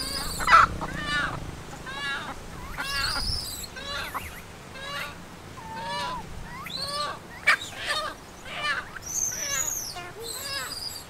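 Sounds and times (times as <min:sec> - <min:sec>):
animal calling: 0:00.0 - 0:11.0.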